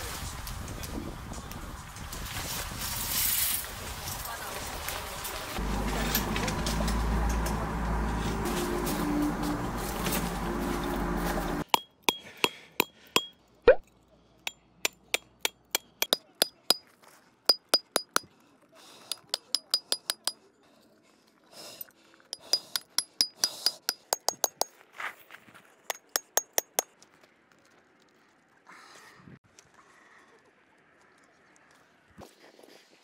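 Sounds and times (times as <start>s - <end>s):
metal tent pegs hammered: 11.7s - 13.4s, 14.9s - 16.8s, 17.5s - 18.3s, 19.1s - 20.4s, 22.4s - 24.7s, 25.9s - 26.8s.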